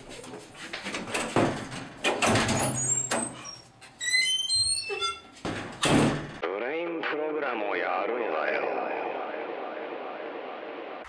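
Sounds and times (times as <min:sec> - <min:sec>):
door knocks and thuds: 0:01.1 - 0:02.8, 0:05.4 - 0:06.4.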